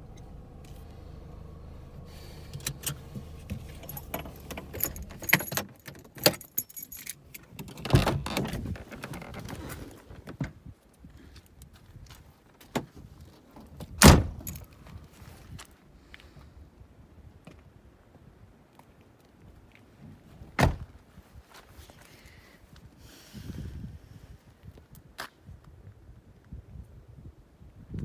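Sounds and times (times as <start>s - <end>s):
car engine hum: 0.0s - 5.9s
car door clicks and rattles: 2.5s - 10.6s, 13.6s - 14.6s
keys jangling: 2.6s - 8.1s.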